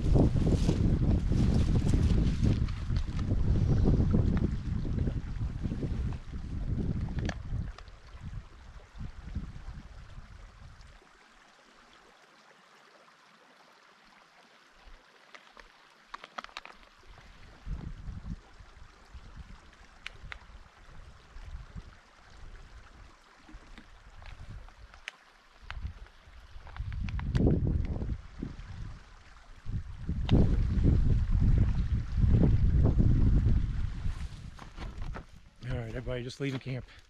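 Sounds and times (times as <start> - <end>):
wind buffeting microphone: 0.0 - 11.0, 17.1 - 23.1, 25.6 - 36.8.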